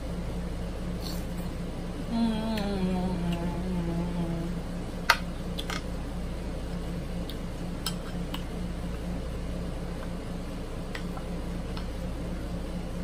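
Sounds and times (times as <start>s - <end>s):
person humming mmm: 2.0s - 4.7s.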